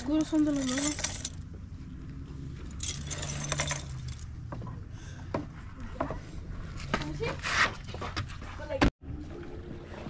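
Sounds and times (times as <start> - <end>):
metal chain clinking: 0.0 - 1.5, 2.6 - 4.4.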